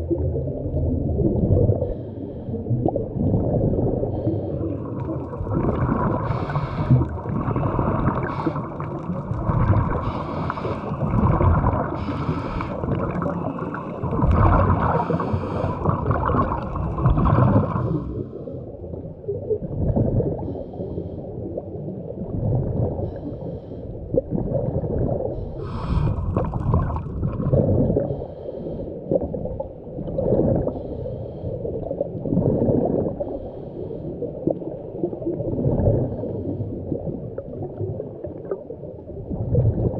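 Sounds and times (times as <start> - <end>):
bubbles gurgling: 0.0 - 20.6, 21.3 - 23.2, 24.0 - 28.2, 29.0 - 30.9, 31.6 - 39.9
underwater diver breathing: 1.8 - 2.8, 3.9 - 18.8, 20.4 - 21.6, 22.9 - 24.2, 25.3 - 27.1, 27.8 - 29.4, 30.4 - 32.0, 33.0 - 34.6, 35.9 - 37.0.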